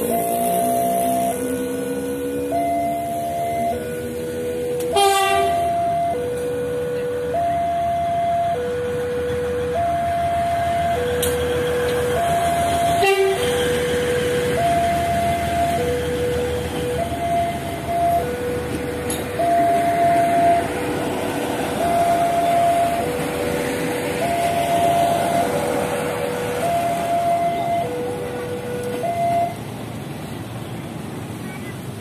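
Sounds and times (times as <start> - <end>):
two-tone level crossing alarm: 0.0 - 29.6
train rumbling: 0.0 - 32.0.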